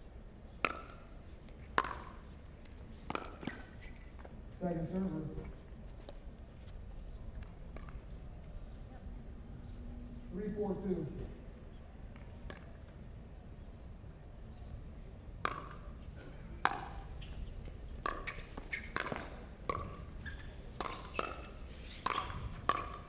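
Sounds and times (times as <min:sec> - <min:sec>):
paddles striking plastic ball: 0:01.8 - 0:02.1.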